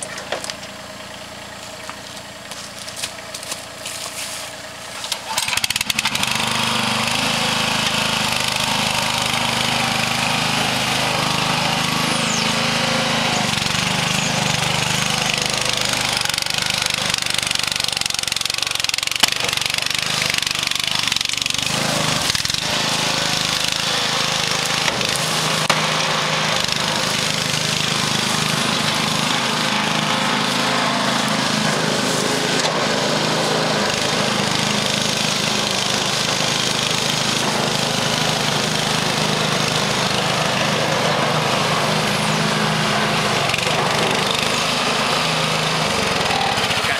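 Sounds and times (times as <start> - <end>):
small petrol engine running: 0.0 - 46.9.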